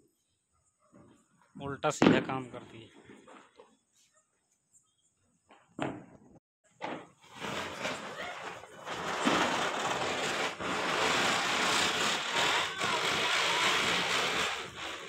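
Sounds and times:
firework fountain hissing: 7.1 - 15.0
firework fizzing: 7.2 - 15.0.

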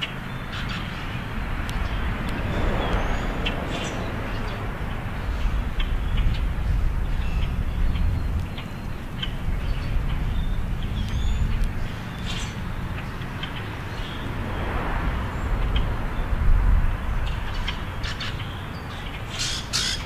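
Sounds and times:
passing rush of noise: 0.0 - 7.9, 11.8 - 18.4
low traffic rumble: 0.0 - 20.0.

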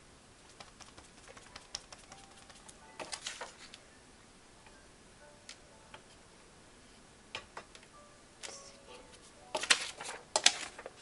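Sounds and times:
paper handling: 0.6 - 3.8, 8.4 - 11.0.

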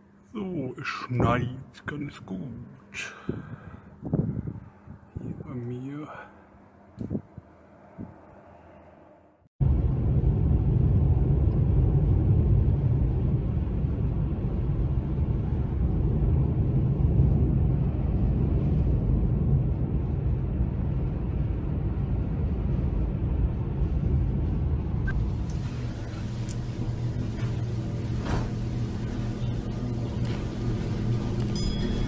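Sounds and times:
car engine rumble: 9.6 - 32.0.

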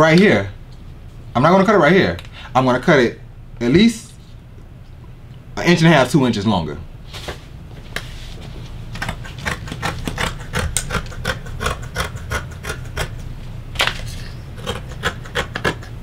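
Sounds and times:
scissors snipping fabric: 9.0 - 13.3.

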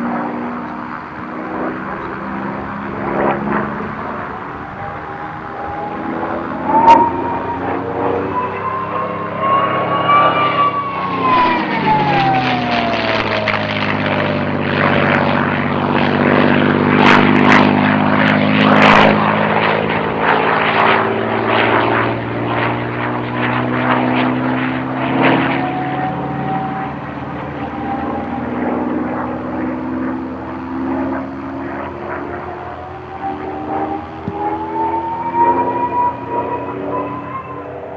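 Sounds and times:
propeller plane engine flyby: 0.0 - 37.9
high whistle: 4.8 - 12.5, 33.2 - 37.8.

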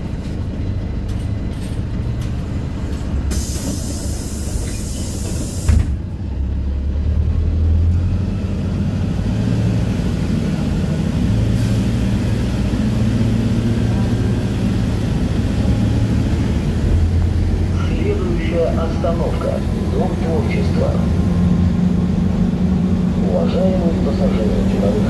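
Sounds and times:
bus engine droning: 0.0 - 25.0
air brake hiss: 3.3 - 5.9.

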